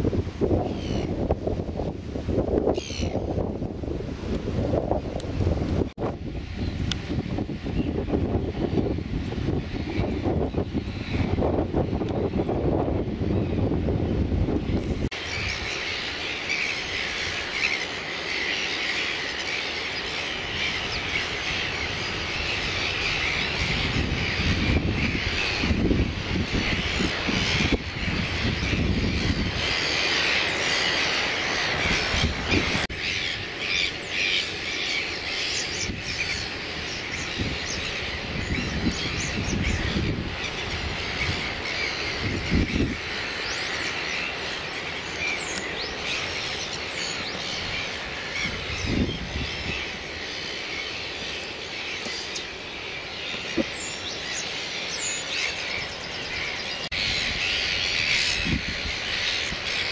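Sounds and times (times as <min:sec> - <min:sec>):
gulls calling: 0:09.5 - 0:59.9.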